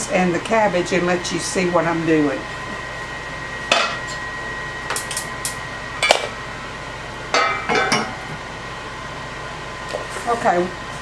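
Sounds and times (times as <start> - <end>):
metal pot clank: 7.3 - 8.2
pot lid clattering: 7.4 - 8.2.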